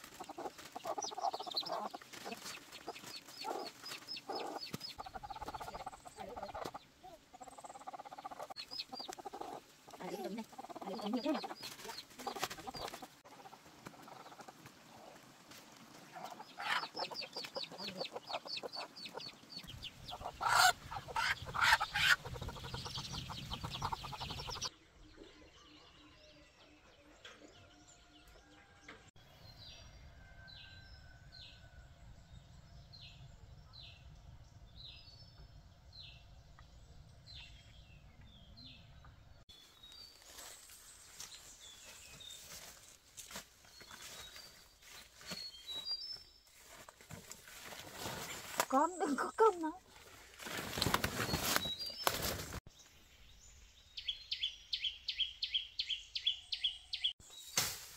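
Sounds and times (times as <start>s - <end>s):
chickens clucking: 0.0s - 24.7s
chicks peeping: 0.1s - 14.6s, 16.1s - 24.7s.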